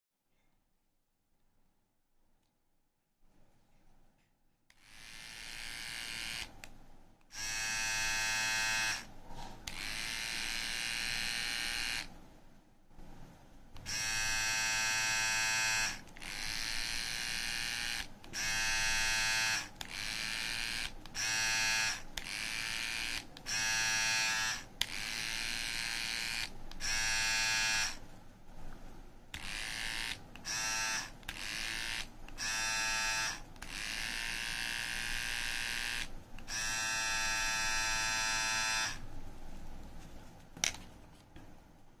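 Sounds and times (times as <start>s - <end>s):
beard trimmer whining: 4.7s - 6.6s, 7.3s - 12.1s, 13.8s - 28.0s, 29.4s - 39.0s
beard trimmer buzzing: 4.8s - 6.6s, 7.3s - 12.1s, 13.8s - 28.0s, 29.4s - 39.0s.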